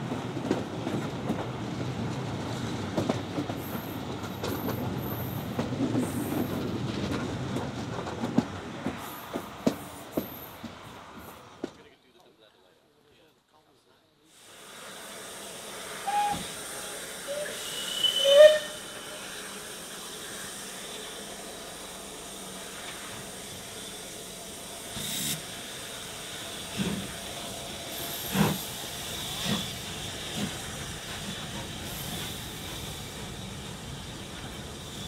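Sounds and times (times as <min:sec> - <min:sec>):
steam hissing from drain cocks: 0:14.3 - 0:35.0
steam locomotive exhaust beats: 0:14.4 - 0:35.0
steam whistle notes: 0:16.0 - 0:19.3.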